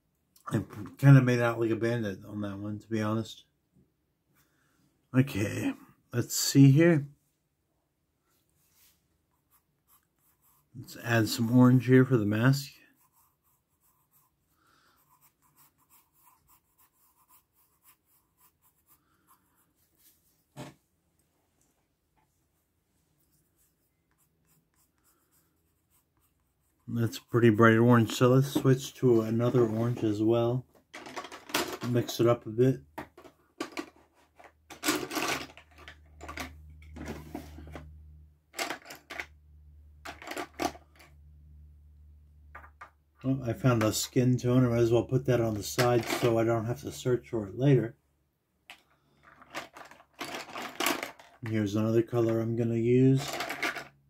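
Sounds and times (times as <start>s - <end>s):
pencil shading on paper: 9.3s - 20.2s, 23.2s - 27.8s
coloured pencils clicking and rattling: 30.9s - 32.2s, 33.0s - 37.9s, 38.5s - 39.4s, 40.0s - 41.2s, 45.7s - 46.4s, 48.7s - 52.4s, 53.1s - 54.0s.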